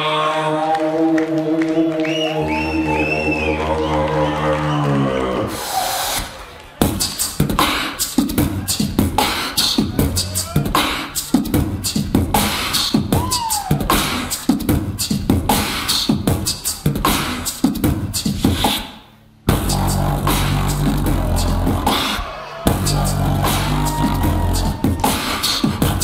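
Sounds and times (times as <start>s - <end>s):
beatboxing into microphone: 0.0s - 26.0s
vocal swoop: 7.0s - 26.0s.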